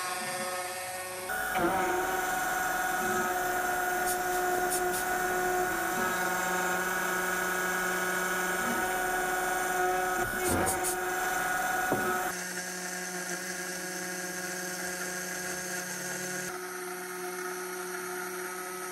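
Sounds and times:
milling spindle whine cutting metal: 0:00.0 - 0:12.3.

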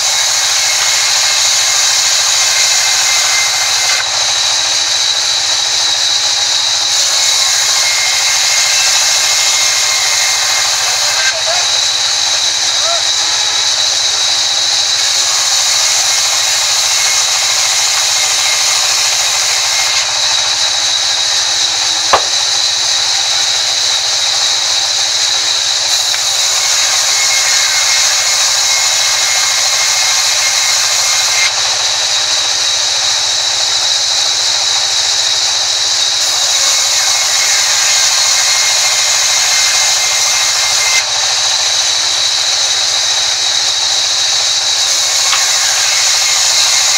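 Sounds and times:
band saw cutting wood: 0:00.0 - 0:46.9
sharp knock: 0:22.1 - 0:22.4.

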